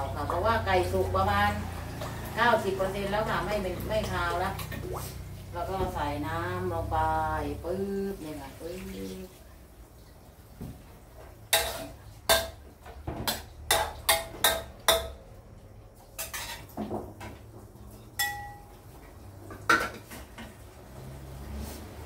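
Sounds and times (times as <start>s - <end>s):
metal ladle clinking on wok: 18.2s - 18.8s.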